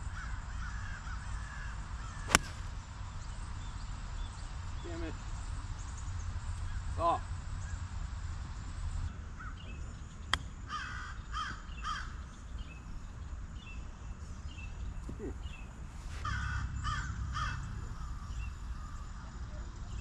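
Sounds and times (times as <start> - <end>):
crow cawing: 0.1 - 2.6, 10.7 - 12.1, 16.2 - 19.2
golf club striking ball: 2.1 - 3.0, 10.3 - 10.5.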